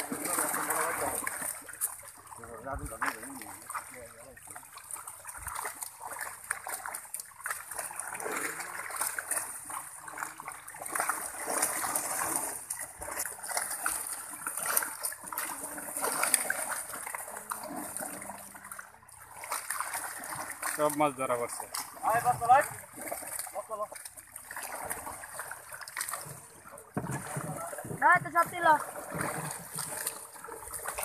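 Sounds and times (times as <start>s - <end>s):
water splashing and sloshing: 0.0s - 31.0s.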